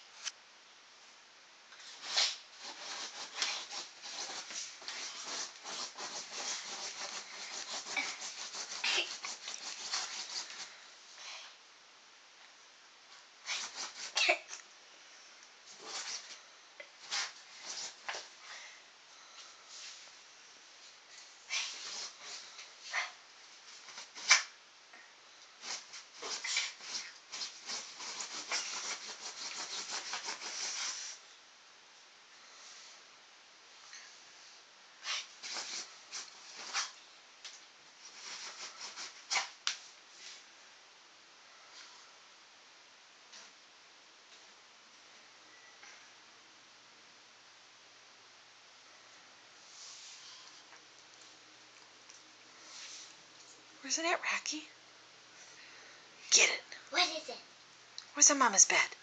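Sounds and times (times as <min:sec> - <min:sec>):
dog paws scratching fabric: 0:01.8 - 0:10.8, 0:13.4 - 0:14.6, 0:15.7 - 0:16.4, 0:17.0 - 0:18.3, 0:21.1 - 0:24.6, 0:25.6 - 0:31.2, 0:35.0 - 0:37.0, 0:38.0 - 0:40.5.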